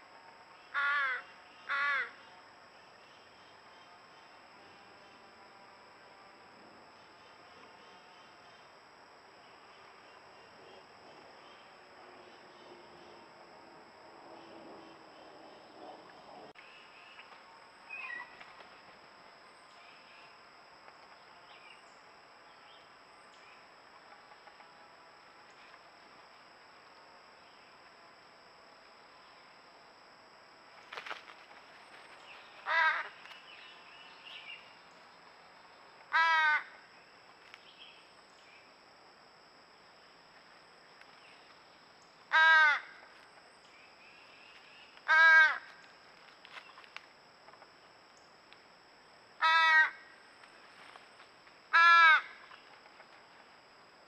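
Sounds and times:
crow cawing: 0.7s - 2.2s, 32.6s - 33.1s, 36.1s - 36.8s, 42.3s - 43.0s, 45.1s - 45.7s, 49.4s - 50.1s, 51.7s - 52.4s.

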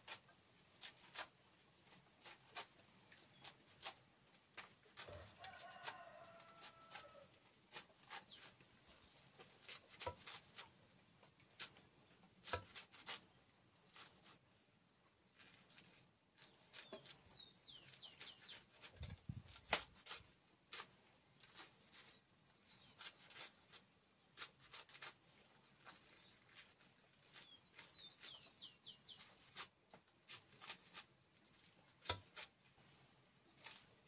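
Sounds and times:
knife slicing greens: 0.0s - 8.6s, 9.4s - 10.8s, 11.4s - 14.4s, 15.4s - 32.6s, 33.5s - 34.0s
bird chirping: 16.7s - 18.6s, 27.3s - 29.4s.

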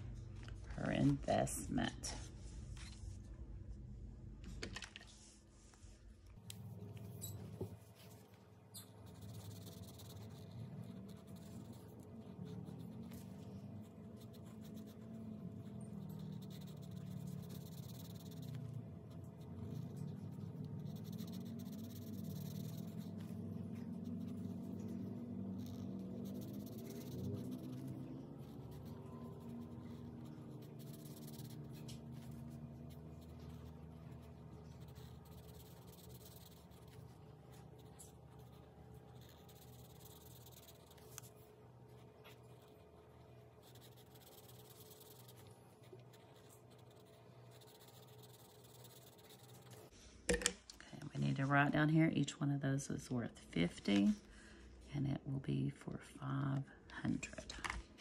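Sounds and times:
marker scratching on cardstock: 8.8s - 49.9s.

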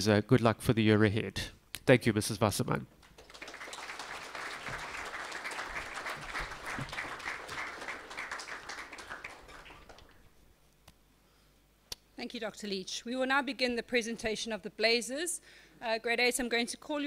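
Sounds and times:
audience clapping: 3.0s - 10.4s.

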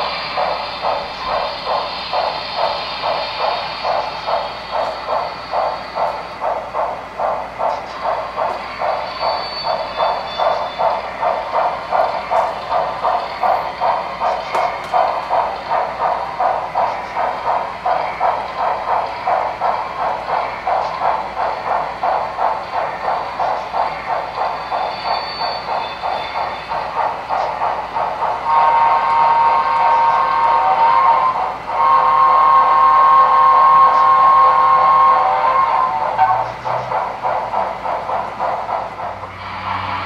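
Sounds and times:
steam locomotive exhaust chuffs: 0.0s - 40.0s
steam locomotive whistle: 8.8s - 12.4s, 24.4s - 27.5s, 28.4s - 36.6s.

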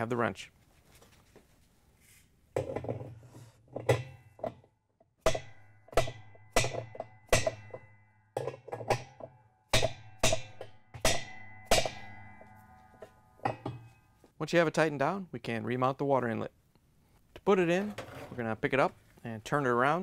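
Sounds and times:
plastic hammer striking metal wrench: 5.3s - 12.2s.

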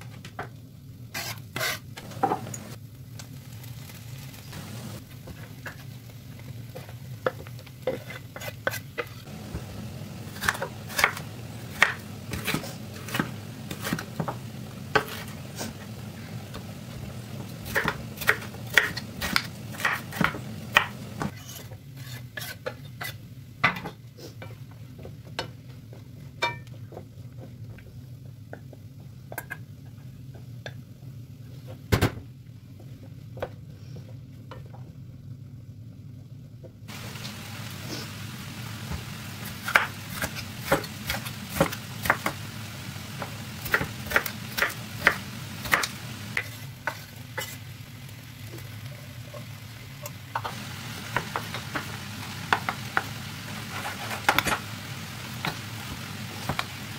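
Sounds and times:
vegetables frying in a pan: 0.1s - 56.9s
knife chopping on cutting board: 10.4s - 14.4s.

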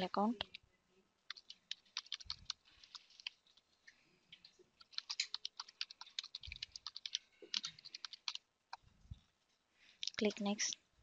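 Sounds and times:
computer keyboard typing: 1.3s - 3.6s, 4.4s - 8.8s.

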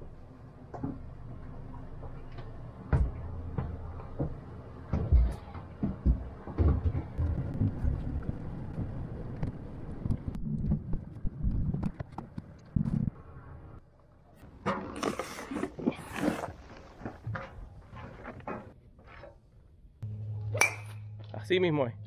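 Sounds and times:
low thumps and knocks: 2.8s - 13.2s.

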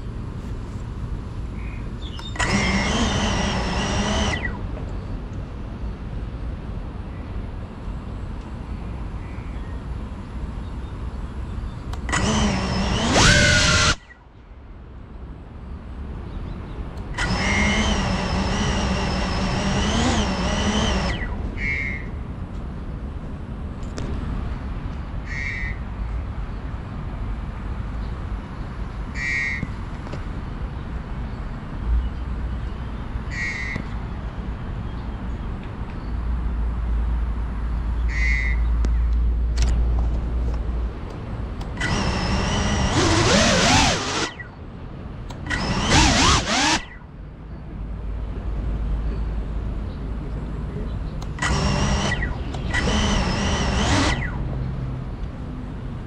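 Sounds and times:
drone motors whining: 2.1s - 4.9s, 12.0s - 14.2s, 17.0s - 22.2s, 41.6s - 44.6s, 45.3s - 47.1s, 51.2s - 54.7s.

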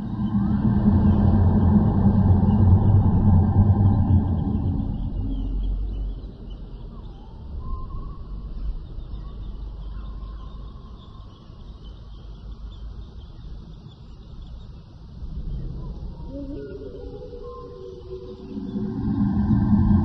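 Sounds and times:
low rumble: 0.0s - 9.8s, 14.6s - 20.0s.

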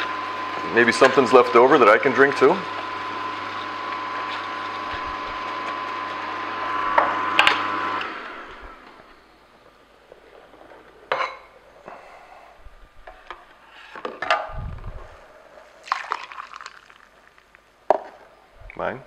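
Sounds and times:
juice pouring into glass: 15.8s - 17.6s.

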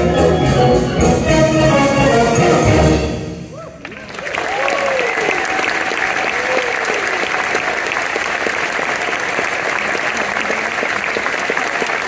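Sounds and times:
short cheer: 3.5s - 7.8s
audience applauding: 3.8s - 12.0s.

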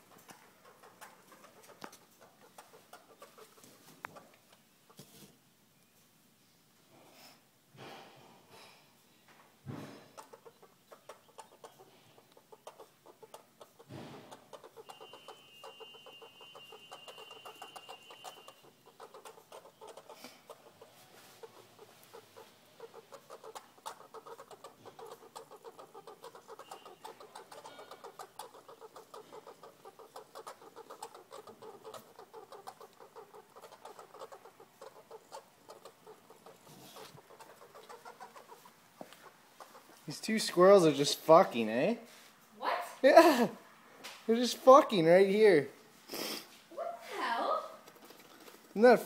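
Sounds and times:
squirrels clucking chatter: 0.0s - 5.1s, 10.1s - 41.8s.

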